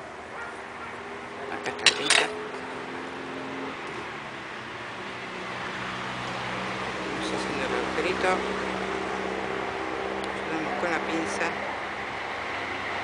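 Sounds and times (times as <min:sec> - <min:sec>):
road traffic hum: 0:00.0 - 0:13.0
metal tools clinking on tile: 0:01.8 - 0:02.4.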